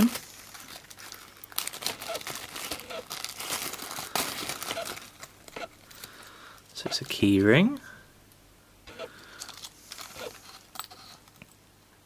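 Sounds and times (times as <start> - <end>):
plastic bag crinkling: 0.0 - 7.2, 9.2 - 11.3.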